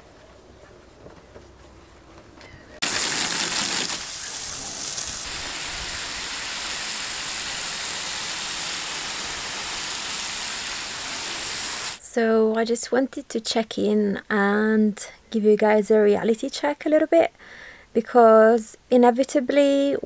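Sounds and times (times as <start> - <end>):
water spraying from a hose: 2.8 - 12.0.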